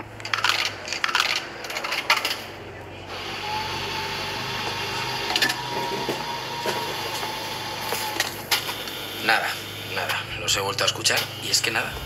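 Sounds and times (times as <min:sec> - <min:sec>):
mechanical whir: 0:03.1 - 0:12.0.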